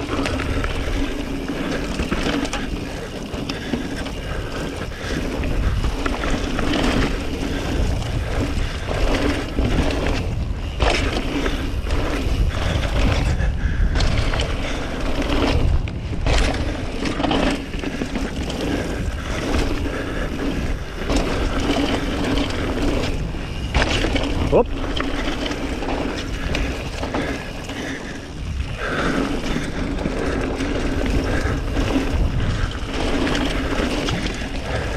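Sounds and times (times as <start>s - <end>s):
bike rattling over bumps: 0.0s - 34.9s
bike tyres on dirt and leaves: 0.0s - 34.9s
wind buffeting microphone: 0.0s - 34.9s.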